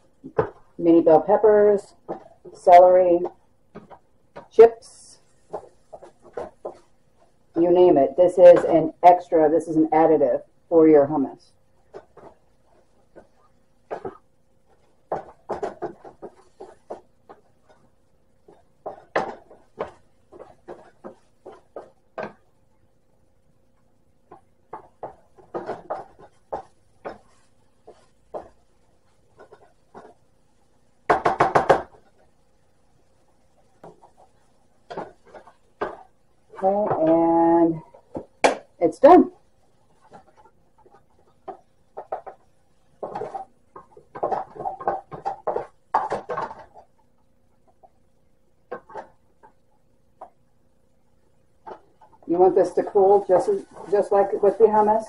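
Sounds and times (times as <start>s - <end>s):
faint steady hum: 0.0s - 55.0s
spatula knocking plastic container: 31.1s - 32.1s.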